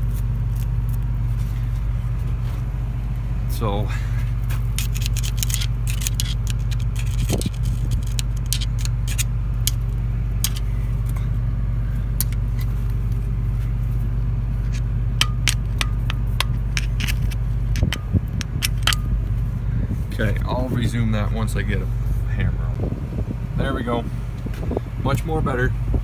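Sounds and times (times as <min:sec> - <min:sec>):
diesel engine idling: 0:00.0 - 0:26.0
metallic clicks and scrapes: 0:04.5 - 0:11.3, 0:14.6 - 0:19.1.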